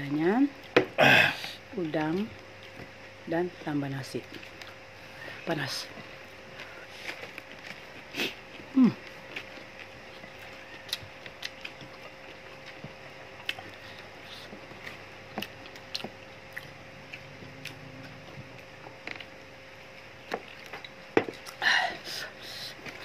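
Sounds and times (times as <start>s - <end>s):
faint steady hum: 0.0s - 23.0s
person chewing food: 6.2s - 21.6s.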